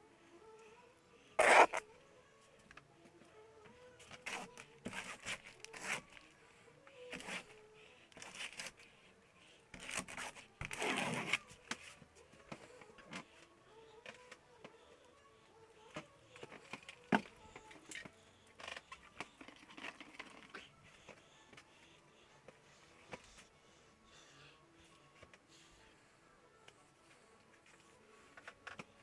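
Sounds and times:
paint scraping on canvas: 0:01.4 - 0:01.8.

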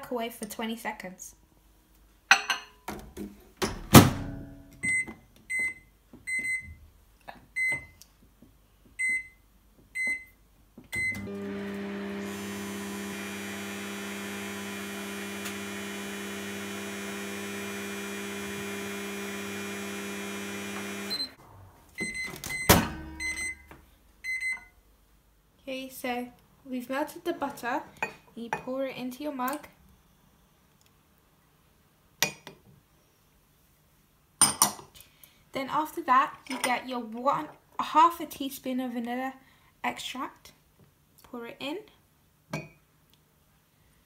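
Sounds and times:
microwave oven humming: 0:11.0 - 0:21.4
microwave door shutting: 0:22.3 - 0:23.2.

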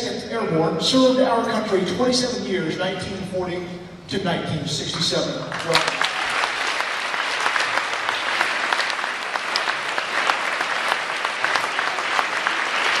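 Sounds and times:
crowd applauding: 0:05.5 - 0:13.0.

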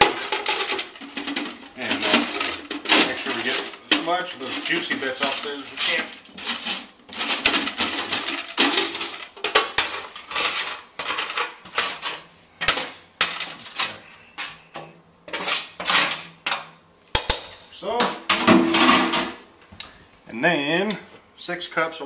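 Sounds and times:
metal utensil scraping baking sheet: 0:00.0 - 0:14.6, 0:15.3 - 0:16.6.

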